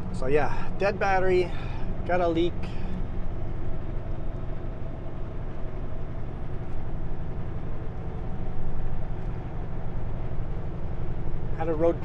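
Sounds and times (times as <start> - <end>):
road and cab noise: 0.0 - 12.0
truck diesel engine droning: 0.0 - 12.0.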